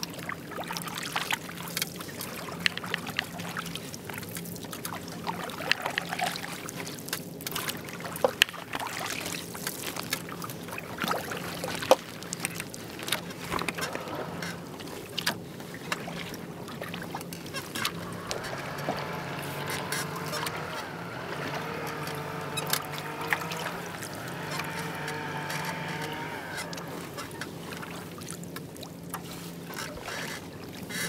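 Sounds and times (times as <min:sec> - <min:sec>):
paddle strokes in water: 0:00.0 - 0:31.0
small water splashes: 0:00.0 - 0:31.0
water dripping off paddle: 0:11.0 - 0:29.9.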